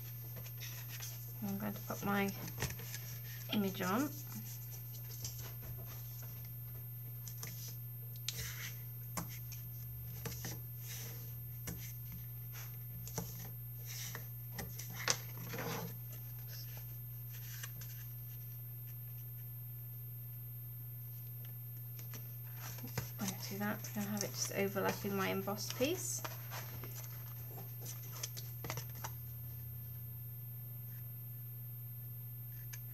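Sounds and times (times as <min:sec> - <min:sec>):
paper rustling: 0:00.0 - 0:06.5, 0:22.1 - 0:29.2
low hum: 0:00.0 - 0:32.9.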